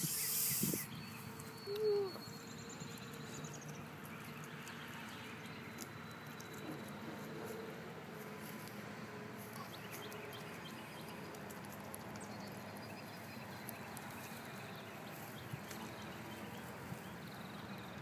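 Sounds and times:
faint bird chirps: 0.0s - 7.0s.

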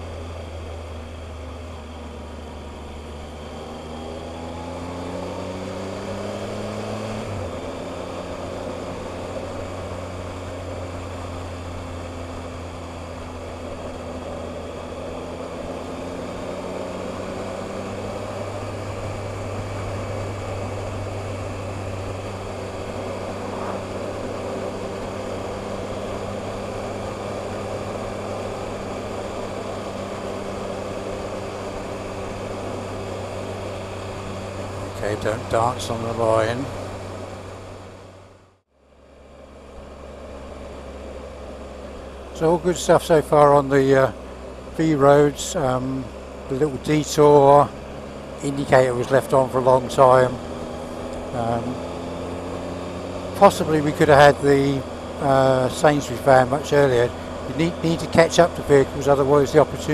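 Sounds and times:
motorcycle engine accelerating: 0.0s - 59.9s
wind noise: 19.2s - 25.9s.

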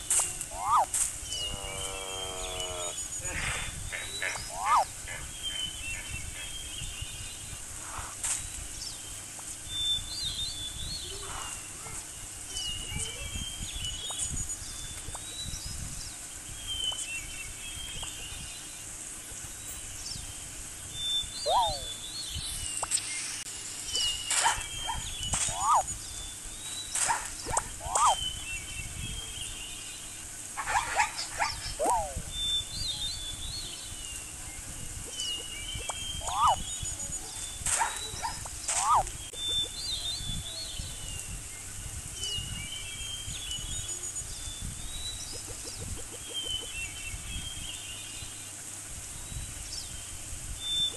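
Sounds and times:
high bird chirps: 0.0s - 3.0s, 4.0s - 8.1s, 21.0s - 29.9s, 35.1s - 41.3s
short sweeping animal calls: 0.5s - 5.3s, 21.4s - 22.0s, 24.0s - 25.9s, 27.0s - 28.3s, 30.6s - 32.3s, 36.2s - 36.6s, 37.8s - 39.2s.

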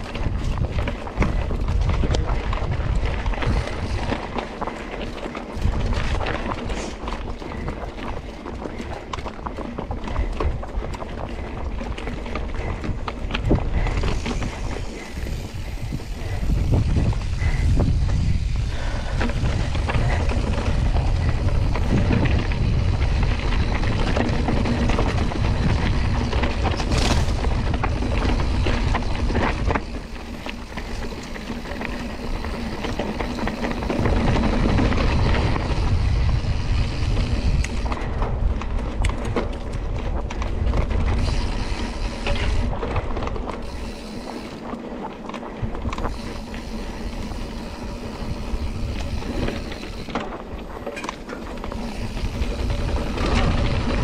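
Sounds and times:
bike clicks and knocks: 0.0s - 54.0s
bike rattling over dirt trail: 0.0s - 54.0s
wind buffeting microphone: 0.0s - 54.0s.

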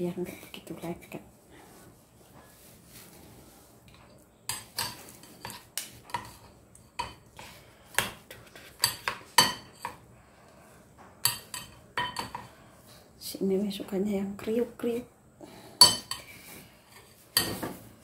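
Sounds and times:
metal utensils clinking on bowl: 11.2s - 12.5s, 15.8s - 17.8s.

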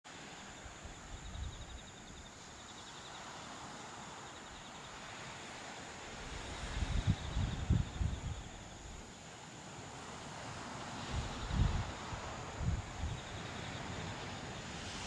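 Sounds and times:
insects chirping: 0.1s - 15.0s
steady hiss: 0.1s - 15.0s.

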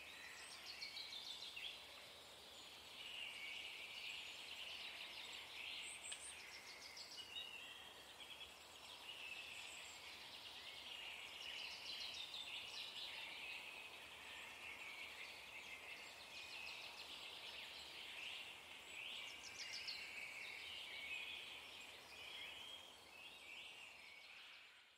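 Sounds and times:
small birds twittering: 0.0s - 24.9s.

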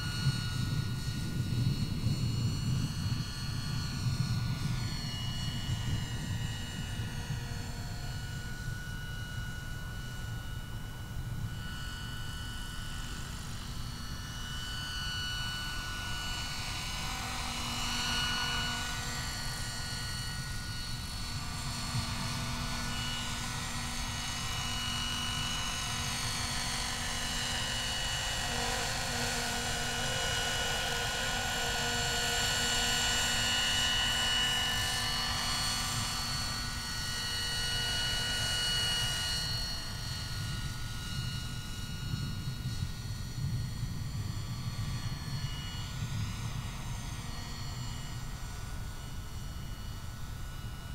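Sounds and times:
electric motor high whine: 0.0s - 50.9s
low rushing rotor noise: 0.0s - 50.9s.

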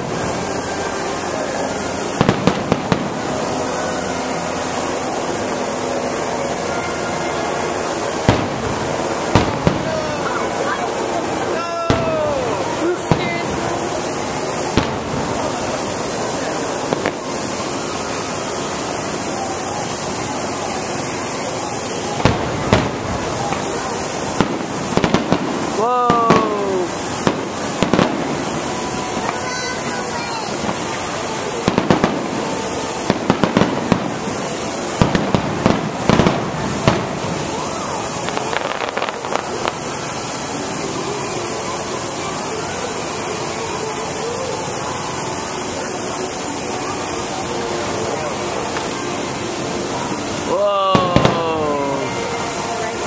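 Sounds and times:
fireworks bursting: 0.0s - 53.0s
steady background hiss: 0.0s - 53.0s
steady rushing noise: 0.0s - 53.0s
firework shells bursting: 2.1s - 3.4s, 8.2s - 10.4s, 22.1s - 29.5s, 30.5s - 40.0s.

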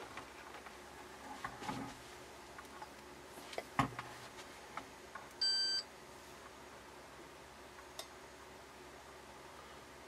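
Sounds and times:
multimeter beep: 5.4s - 5.8s.

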